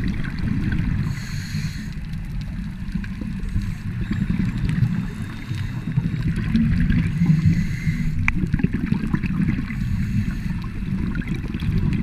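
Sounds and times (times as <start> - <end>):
underwater rumble and bubbles: 0.0 - 12.0
faint clicks: 1.7 - 6.8.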